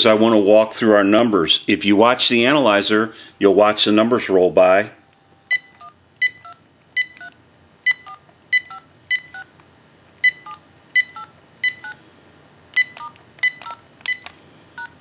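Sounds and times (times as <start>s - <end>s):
keypress beeps: 5.4s - 9.5s, 10.2s - 12.0s, 12.7s - 15.0s.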